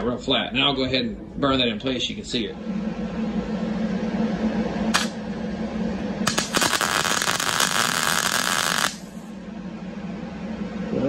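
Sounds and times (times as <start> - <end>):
low steady hum: 0.0 - 11.0
welder arc crackling: 5.0 - 5.2, 6.2 - 9.2.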